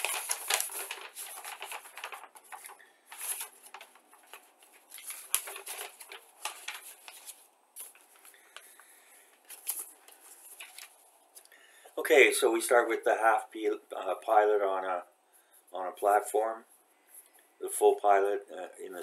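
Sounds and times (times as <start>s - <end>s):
paper rustling and crackling: 0.0s - 11.4s.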